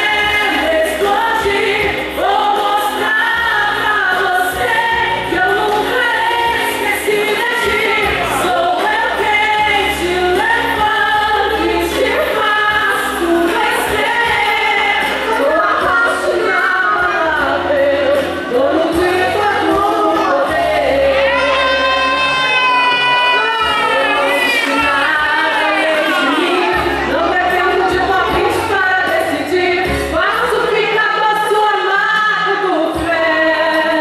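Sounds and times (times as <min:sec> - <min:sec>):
instrumental backing with bass: 0:00.0 - 0:34.0
woman singing into microphone: 0:00.0 - 0:34.0.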